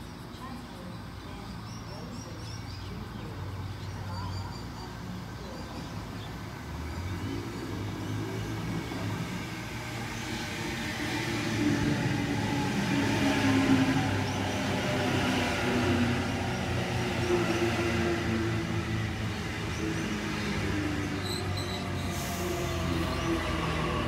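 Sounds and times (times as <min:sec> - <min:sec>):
electric train hum: 0:04.9 - 0:24.0
train wheel noise: 0:05.2 - 0:24.0.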